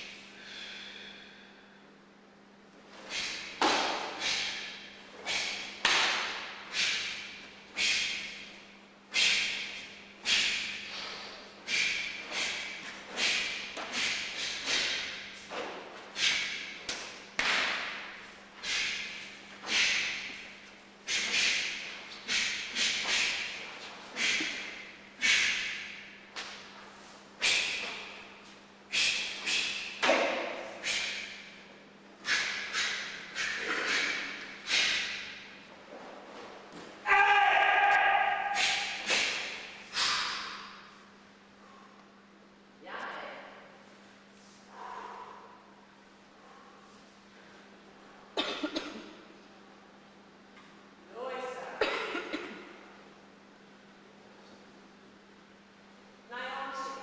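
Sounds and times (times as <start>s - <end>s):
forceful breaths: 0.0s - 1.8s, 2.9s - 8.5s, 9.1s - 15.5s, 18.6s - 26.0s, 32.2s - 35.5s, 38.6s - 40.8s.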